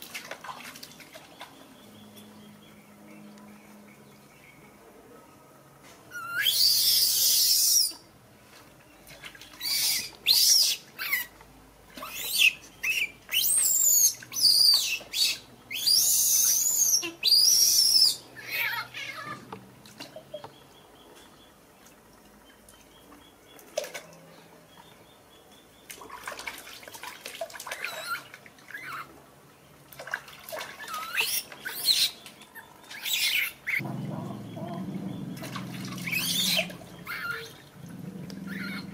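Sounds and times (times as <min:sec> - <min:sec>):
infant monkey screaming: 0:06.1 - 0:08.0, 0:09.6 - 0:11.3, 0:12.0 - 0:19.5, 0:27.8 - 0:29.1, 0:30.8 - 0:32.2, 0:32.9 - 0:33.8, 0:36.0 - 0:37.6, 0:38.4 - 0:38.9.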